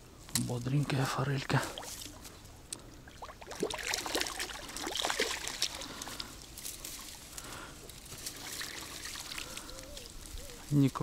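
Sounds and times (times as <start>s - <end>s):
water trickling and dripping: 1.5s - 6.3s, 8.2s - 10.5s
fish splashing: 3.0s - 6.3s, 8.3s - 9.9s.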